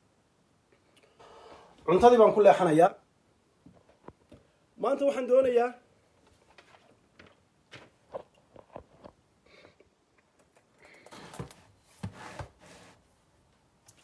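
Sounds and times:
soft rustles: 6.1 - 9.2.

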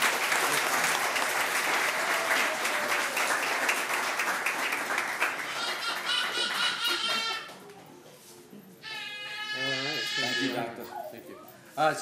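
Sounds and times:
audience applauding: 0.0 - 7.6.

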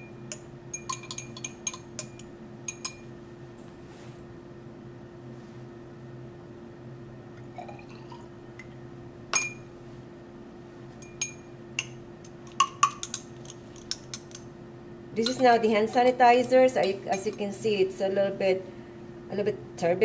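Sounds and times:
glassware clinking: 0.0 - 3.1, 9.4 - 9.7, 11.0 - 14.4, 16.8 - 17.5.

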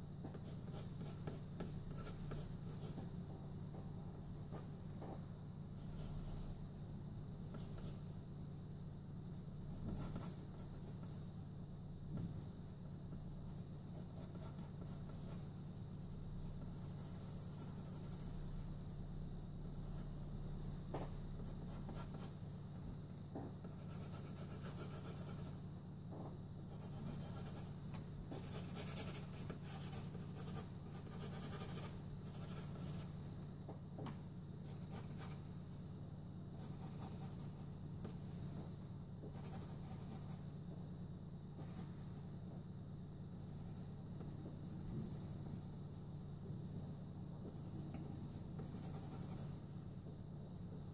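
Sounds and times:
steady low hum: 0.0 - 50.9
pencil scratching on paper: 0.2 - 3.2, 9.4 - 11.2, 13.4 - 18.8, 23.6 - 25.6, 26.7 - 33.3, 34.6 - 35.5, 36.6 - 40.4, 47.6 - 49.9.

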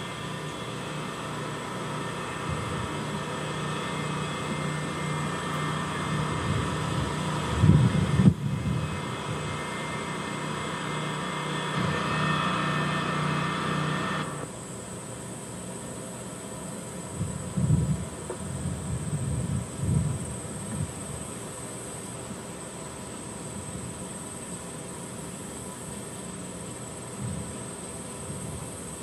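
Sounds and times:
vehicle engine droning: 0.0 - 14.5.

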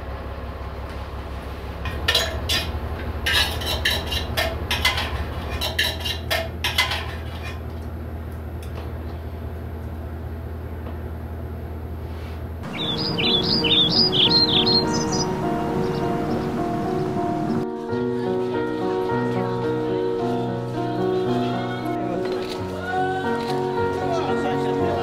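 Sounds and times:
steady low hum: 12.6 - 17.6.

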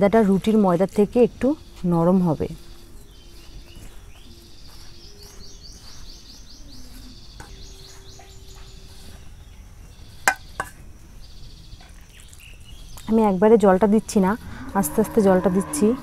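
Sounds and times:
quiet outdoor ambience: 0.0 - 16.0
bird chirping rapidly: 1.2 - 10.6.

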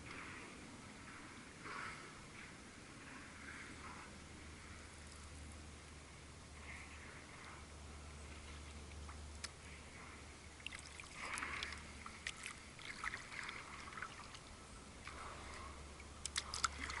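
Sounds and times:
paddle strokes in water: 6.5 - 17.0
small splashes and drips: 10.5 - 17.0.

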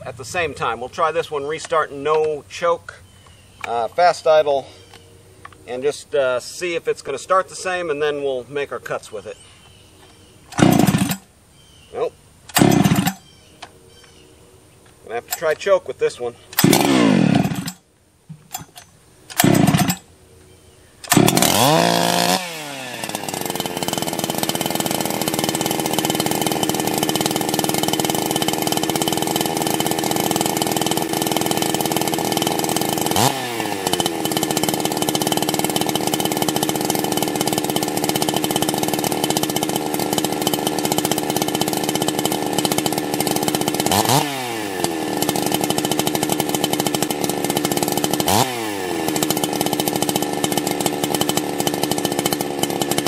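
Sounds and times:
chainsaw starting and idling: 10.1 - 11.3, 12.5 - 13.4, 15.1 - 20.1, 21.0 - 53.0
chainsaw revving: 10.5 - 11.3, 12.5 - 13.4, 16.5 - 20.1, 21.0 - 53.0.

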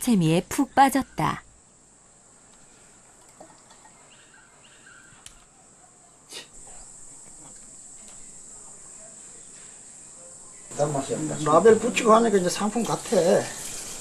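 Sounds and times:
insect chirring: 6.5 - 14.0
juice pouring into plastic bottles: 12.4 - 14.0.

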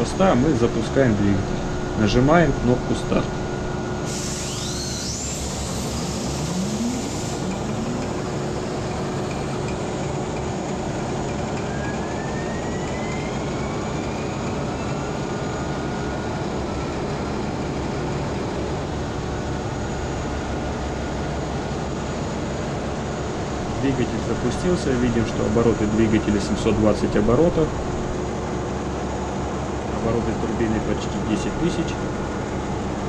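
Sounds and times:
turbocharger whine rising: 0.0 - 21.2
diesel engine running: 0.0 - 33.0
air-start hiss: 4.0 - 7.7.

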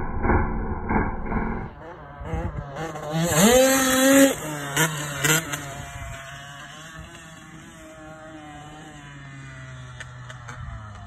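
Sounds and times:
motocross bike engine revving: 0.9 - 11.0.

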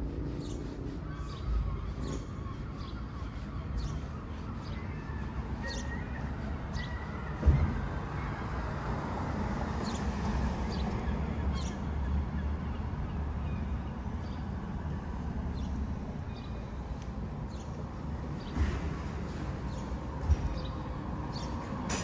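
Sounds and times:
low rumble of traffic: 0.0 - 22.0
high bird chirps: 0.4 - 8.6.

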